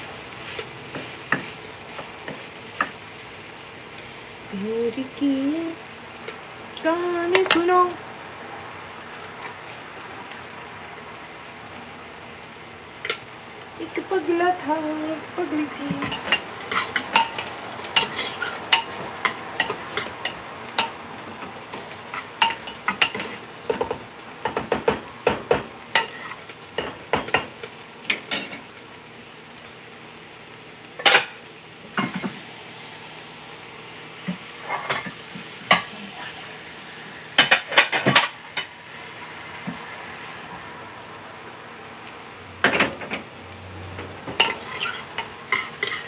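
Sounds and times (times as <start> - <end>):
frying sizzle: 0.0 - 46.0.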